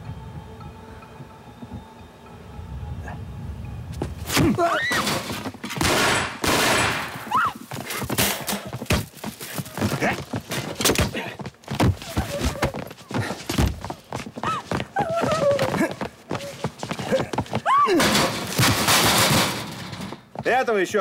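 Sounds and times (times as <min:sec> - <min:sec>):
punches and thuds: 0:04.3 - 0:09.3.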